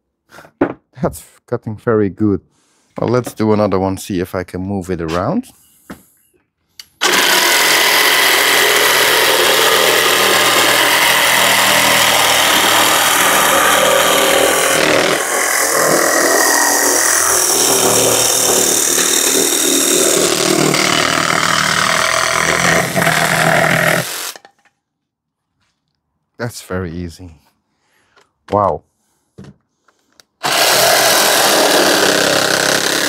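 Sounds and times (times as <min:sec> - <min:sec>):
jigsaw cutting plywood: 0:07.0 - 0:24.5, 0:30.4 - 0:33.0.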